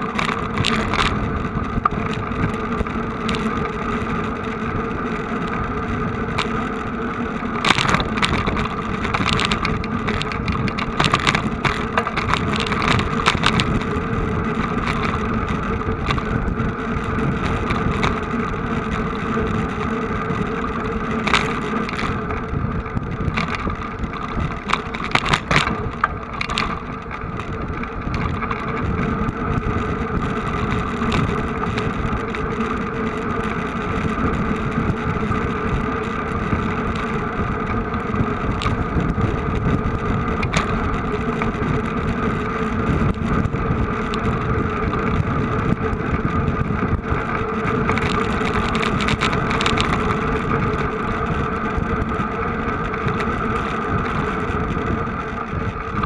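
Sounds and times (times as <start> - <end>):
sharp clicks and knocks: 0.0 - 3.8, 7.5 - 16.5, 20.3 - 34.7, 35.3 - 42.4, 46.5 - 50.9
vehicle engine humming: 0.0 - 56.0.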